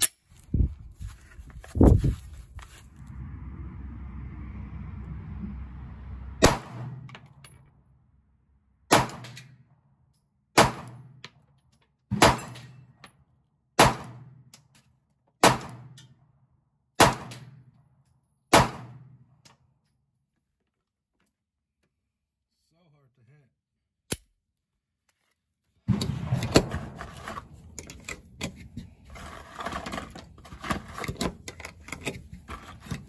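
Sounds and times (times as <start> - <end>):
pistol shots with echo: 8.9 - 9.4, 10.6 - 11.1, 13.8 - 14.3.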